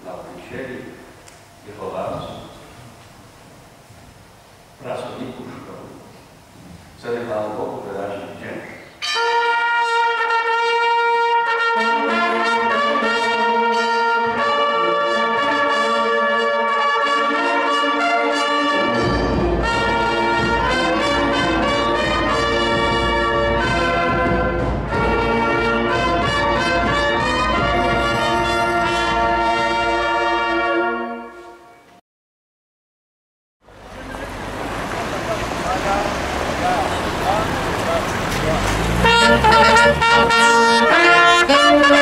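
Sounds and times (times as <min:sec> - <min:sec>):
brass band playing held chords: 0:09.0 - 0:31.9, 0:33.9 - 0:42.0
deep bass part: 0:19.0 - 0:29.7.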